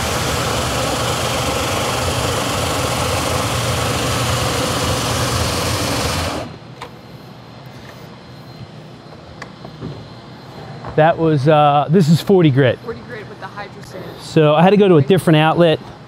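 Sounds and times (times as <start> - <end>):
floor sander motor hum: 0.0 - 6.6.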